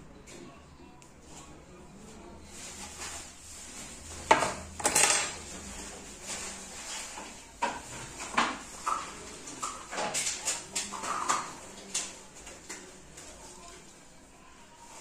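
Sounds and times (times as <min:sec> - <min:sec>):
metal tools clinking and scraping: 0:04.8 - 0:05.4.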